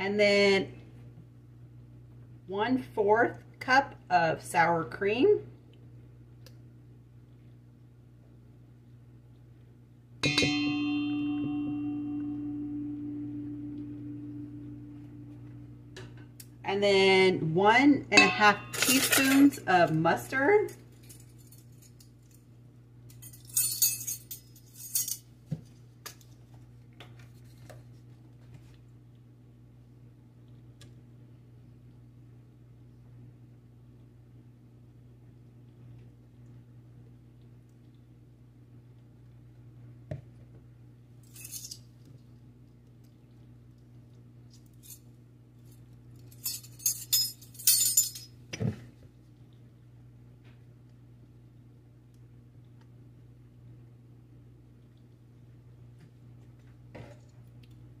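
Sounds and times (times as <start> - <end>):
steady low hum: 0.0 - 58.0
utensil clattering in metal bowl: 18.2 - 19.6.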